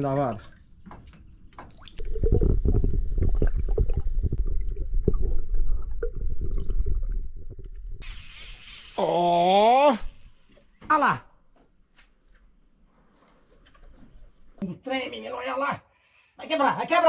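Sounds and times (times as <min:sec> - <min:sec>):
underwater rumble and gurgle: 0:02.0 - 0:08.0
faint hiss: 0:08.0 - 0:10.4.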